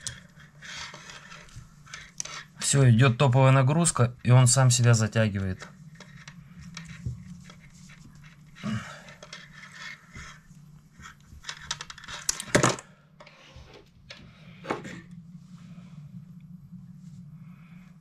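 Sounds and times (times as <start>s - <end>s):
fishing line creaking: 0.0s - 2.6s, 5.5s - 12.4s
low steady hum: 0.0s - 18.0s.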